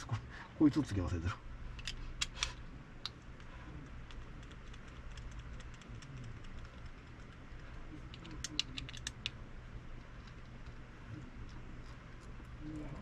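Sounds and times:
low steady hum: 0.0s - 13.0s
small metal parts clicking: 8.1s - 9.3s.

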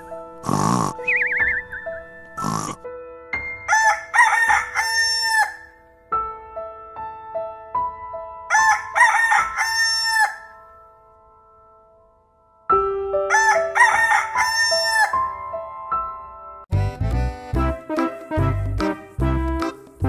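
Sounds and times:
rooster crowing: 3.7s - 5.7s, 8.5s - 10.5s, 13.3s - 15.2s.

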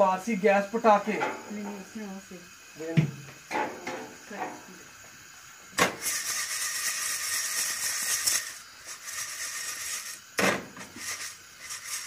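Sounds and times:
popcorn kernels rattling in a pan: 5.7s - 12.0s.

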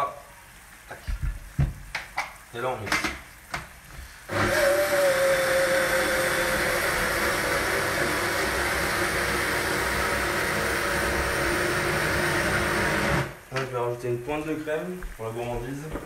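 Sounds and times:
blender motor whine: 4.3s - 13.4s.

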